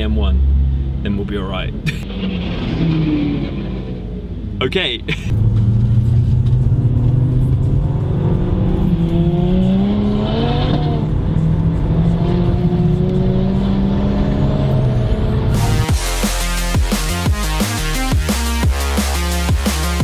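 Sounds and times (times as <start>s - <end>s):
car engine accelerating: 1.9s - 20.0s
electronic music: 15.5s - 20.0s.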